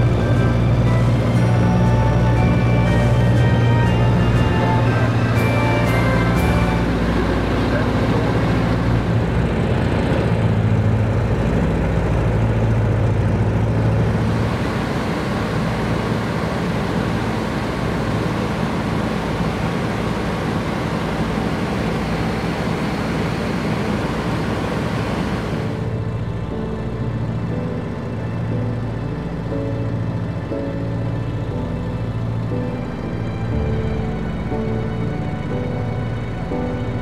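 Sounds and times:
aircraft engines droning: 0.0s - 37.0s
rushing airflow: 13.4s - 26.1s.

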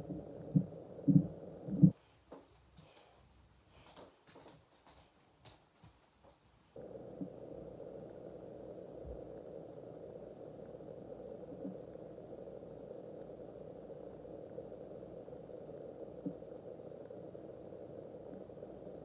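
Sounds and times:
low hum of room tone: 0.0s - 19.0s.

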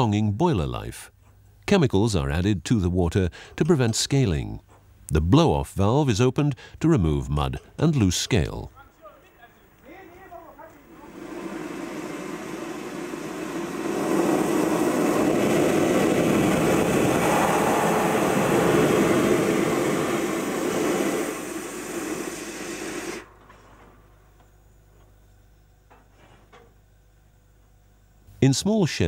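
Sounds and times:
steam hissing from valve: 10.2s - 23.3s.

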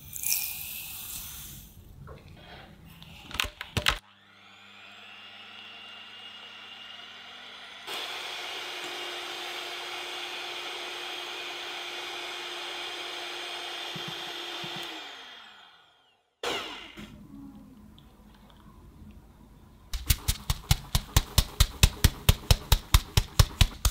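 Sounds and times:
electric hand mixer whirring: 4.0s - 17.0s.

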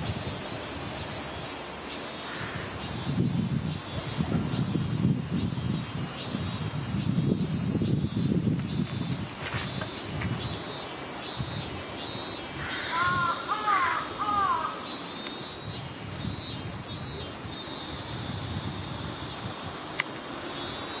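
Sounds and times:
high insect buzz: 0.0s - 21.0s
crow cawing: 12.6s - 14.9s.

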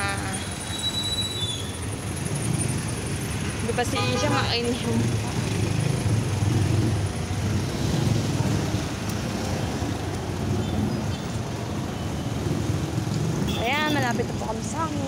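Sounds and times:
city street traffic rumble: 0.0s - 15.0s.

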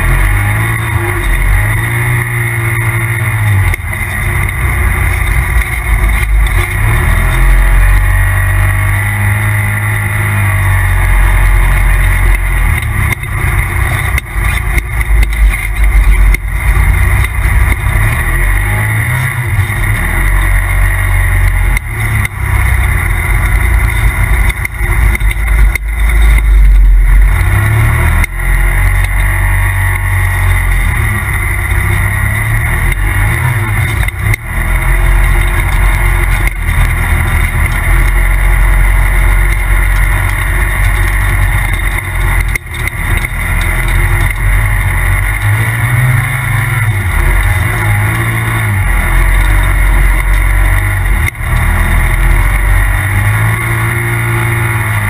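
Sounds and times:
off-road vehicle engine revving: 0.0s - 55.0s.

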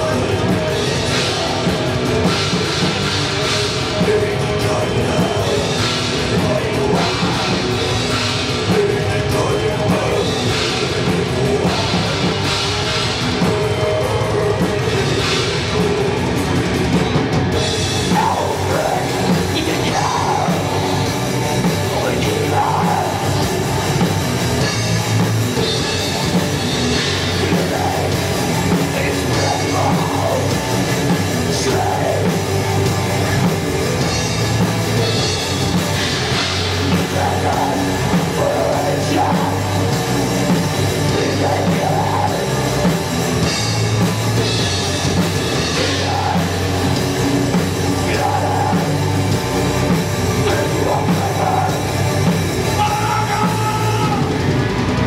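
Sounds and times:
bass guitar: 0.0s - 55.0s
distorted electric guitars: 0.0s - 55.0s
drum kit: 0.0s - 55.0s
person singing into microphone: 18.1s - 21.2s.

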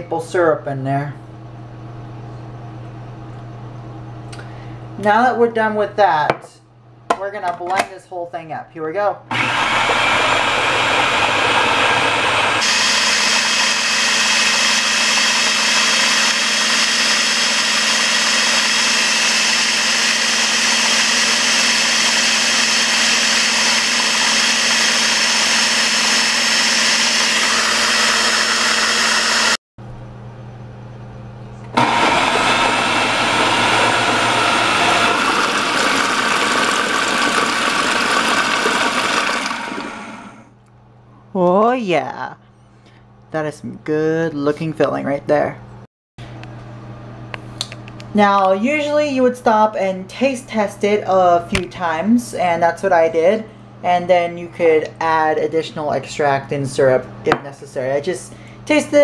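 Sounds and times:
food processor running: 9.3s - 29.6s, 31.7s - 40.5s.

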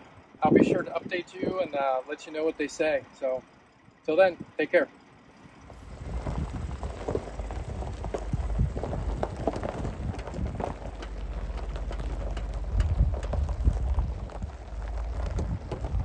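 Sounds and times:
wind buffeting microphone: 5.6s - 16.0s.

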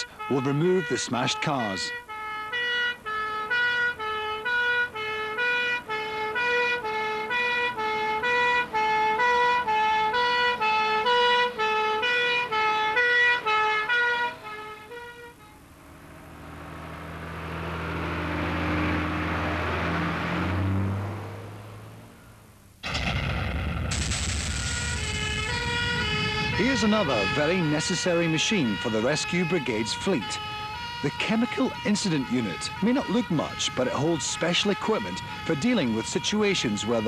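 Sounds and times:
two-tone fire engine siren: 0.0s - 22.4s, 24.3s - 37.0s
rushing noise with low hum: 22.8s - 27.6s.

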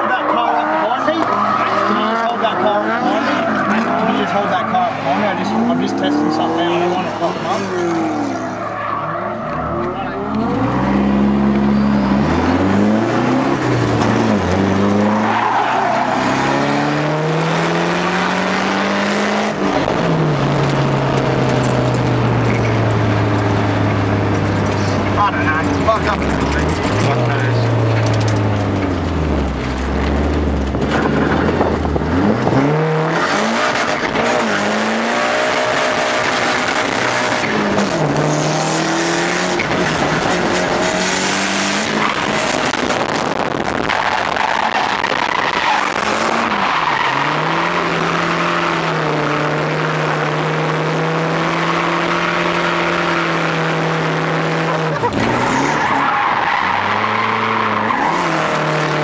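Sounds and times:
car engine revving: 0.0s - 59.0s
tyres squealing: 15.0s - 16.8s, 54.2s - 59.0s.

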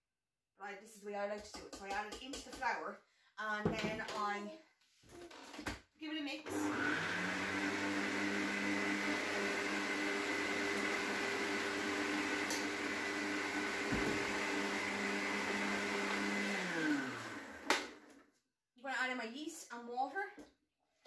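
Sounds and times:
stand mixer running: 6.5s - 18.0s.

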